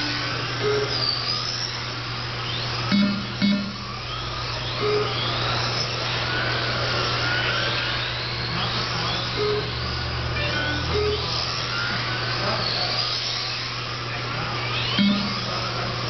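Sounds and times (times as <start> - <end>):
rc car motors whining: 0.0 - 16.0
steady low hum: 0.0 - 16.0
short electronic beeps: 2.9 - 5.2, 9.3 - 9.8, 10.4 - 11.9, 14.8 - 15.5.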